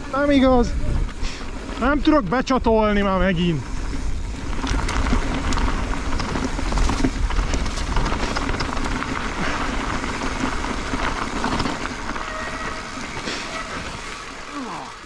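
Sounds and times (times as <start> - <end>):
wind rumble on microphone: 0.0 - 14.2
bike clicks and rattles: 0.0 - 15.0
tyres crunching over stones: 3.5 - 15.0.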